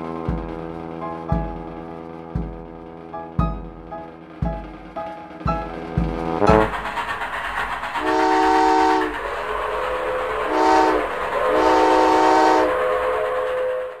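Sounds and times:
train running: 0:00.0 - 0:14.0
train whistle blasts: 0:08.0 - 0:14.0.

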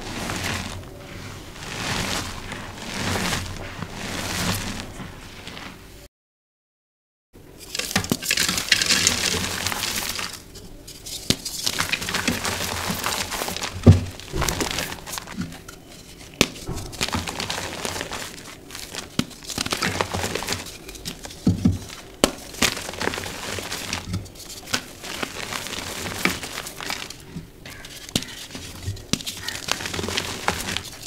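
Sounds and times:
chalk blocks crumbling by hand: 0:07.6 - 0:31.0
dull thumps: 0:11.3 - 0:15.7.

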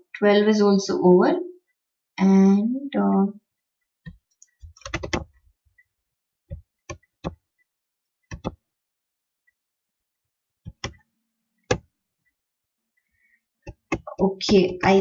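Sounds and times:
keyboard keys clicking: 0:04.7 - 0:05.3, 0:08.3 - 0:08.6.

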